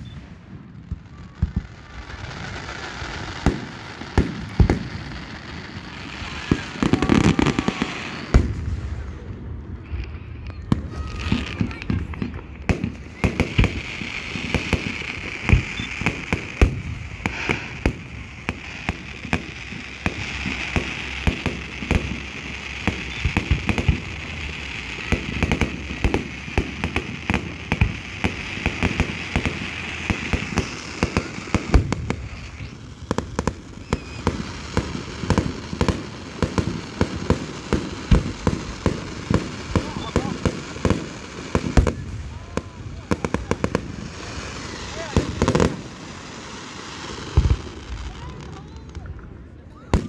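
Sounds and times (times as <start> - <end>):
fireworks bangs: 0.0 - 50.0
high hiss: 13.0 - 37.0.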